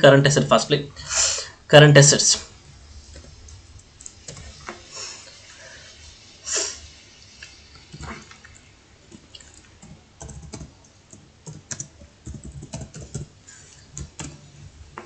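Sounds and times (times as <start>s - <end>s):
typing on a keyboard: 9.4s - 13.3s, 14.0s - 14.4s.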